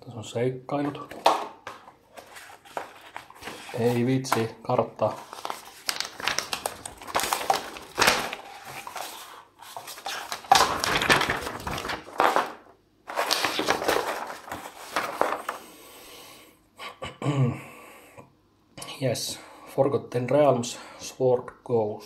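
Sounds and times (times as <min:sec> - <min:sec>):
paper rustling and crinkling: 0:01.0 - 0:15.6.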